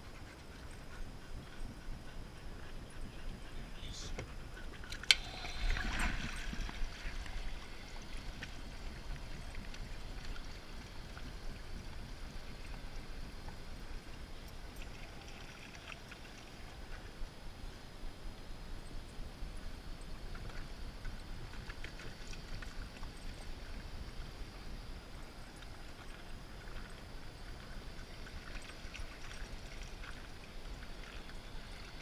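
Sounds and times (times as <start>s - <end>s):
faint trickle of running water: 2.9s - 17.3s, 20.3s - 32.0s
water splashing and sloshing: 4.2s - 17.2s, 20.3s - 32.0s.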